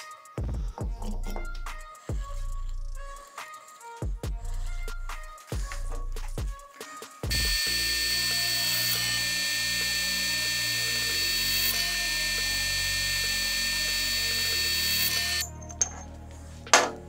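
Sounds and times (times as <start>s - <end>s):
drill press boring through metal: 7.3s - 15.5s.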